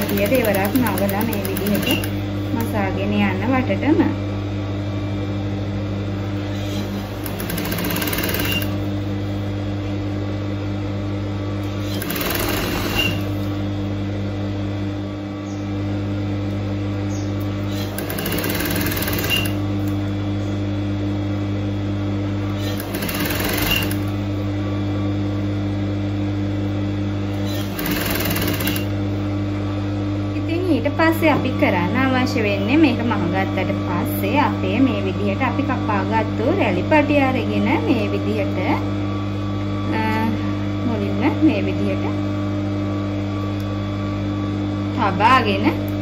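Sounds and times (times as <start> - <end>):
electric sewing machine running: 0.0 - 2.8, 6.4 - 9.1, 11.6 - 13.6, 17.6 - 20.1, 22.4 - 24.4, 27.3 - 29.0.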